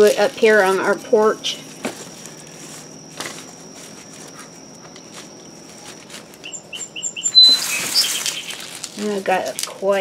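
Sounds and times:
dry stalks and newspaper rustling: 0:00.0 - 0:10.0
high-pitched whine: 0:01.1 - 0:09.1
bird chirping: 0:06.4 - 0:08.9.

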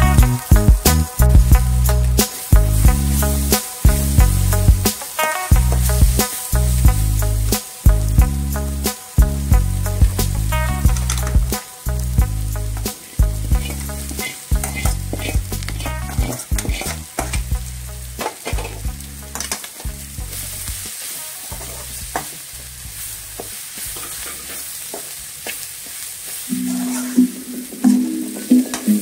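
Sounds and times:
hot oil sizzling: 0:00.0 - 0:29.0
metal spatula scraping a pan: 0:12.7 - 0:17.4, 0:20.4 - 0:22.4, 0:24.0 - 0:24.7.

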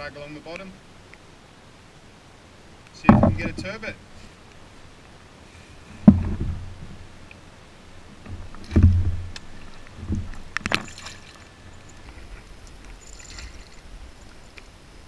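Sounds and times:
heavy thump on kayak: 0:03.0 - 0:03.7, 0:06.0 - 0:07.0, 0:08.3 - 0:11.1.

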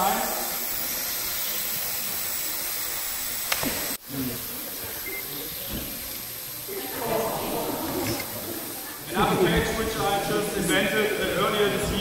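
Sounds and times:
room noise hiss: 0:00.0 - 0:12.0
sharp click: 0:03.4 - 0:03.8.

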